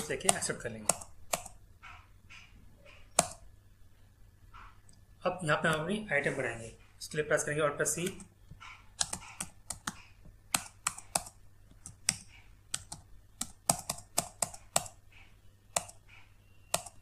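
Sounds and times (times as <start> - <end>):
computer keyboard typing: 0.0 - 1.6, 2.9 - 3.4, 8.0 - 17.0.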